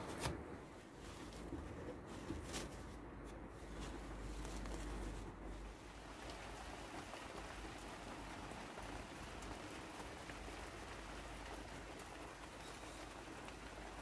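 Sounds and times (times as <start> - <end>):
rain falling into puddles: 5.6 - 14.0.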